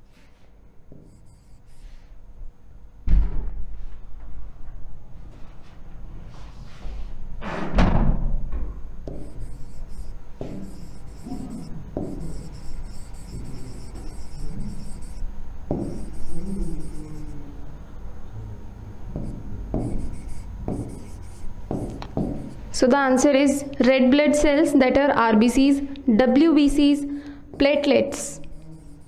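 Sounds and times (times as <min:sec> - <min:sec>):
stylus scratching on writing board: 0:09.1 - 0:17.2, 0:19.2 - 0:22.7, 0:28.5 - 0:29.0.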